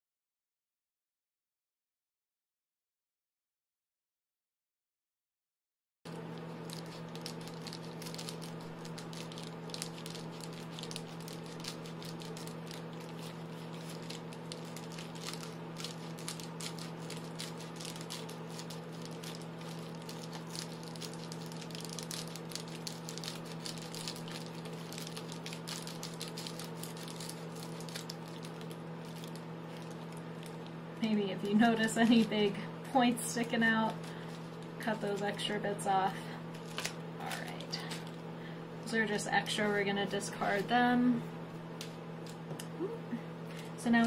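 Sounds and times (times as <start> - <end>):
foil and bubbles crinkling: 6.1 - 32.6, 33.3 - 38.2
steady low hum: 6.1 - 44.0
scissors snipping foil insulation: 6.5 - 32.3.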